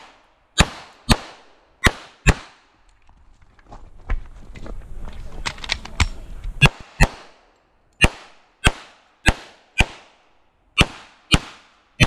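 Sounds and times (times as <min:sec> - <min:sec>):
pistol shots echoing: 0:00.0 - 0:02.6, 0:08.0 - 0:10.2, 0:10.8 - 0:12.0.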